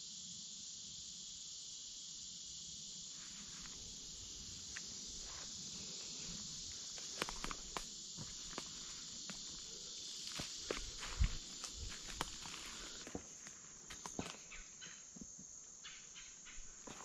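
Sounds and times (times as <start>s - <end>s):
high insect chorus: 0.0s - 17.0s
footsteps crunching through dry leaves: 10.2s - 13.4s.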